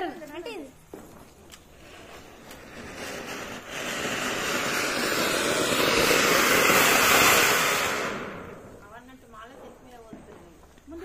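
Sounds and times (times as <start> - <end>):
firework hissing: 0.0 - 11.0.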